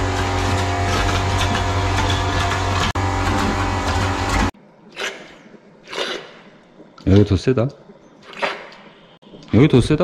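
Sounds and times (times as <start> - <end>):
air compressor humming and hissing: 0.0 - 4.6.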